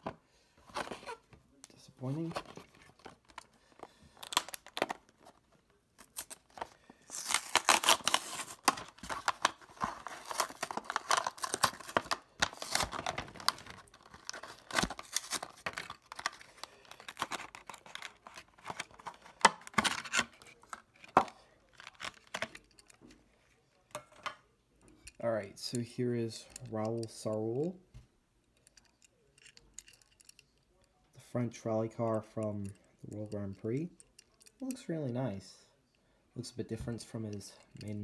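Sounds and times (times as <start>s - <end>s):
plastic blister pack crinkling: 2.0s - 5.4s, 6.0s - 22.9s.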